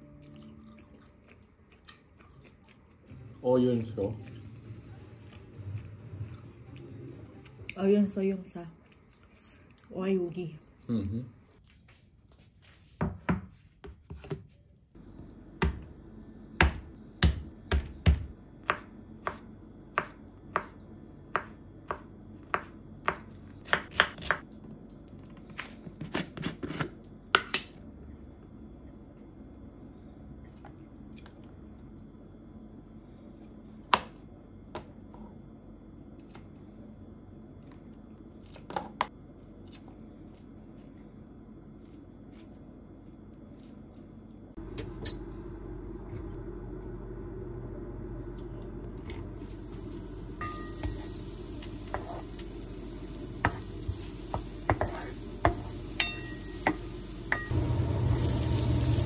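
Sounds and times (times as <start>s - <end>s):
knife chopping on cutting board: 20.0s - 24.4s, 54.3s - 55.7s.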